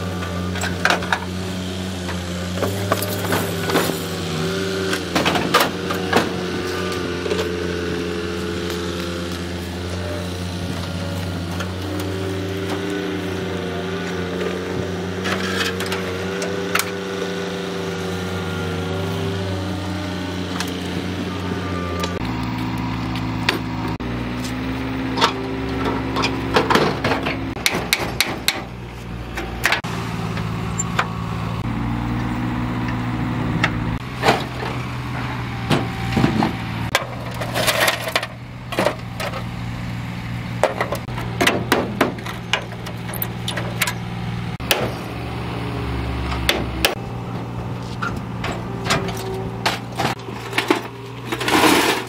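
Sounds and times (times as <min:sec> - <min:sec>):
metal car door clanking and scraping: 0:04.9 - 0:06.6, 0:25.1 - 0:29.9, 0:33.6 - 0:39.5, 0:40.6 - 0:45.1, 0:46.3 - 0:52.0.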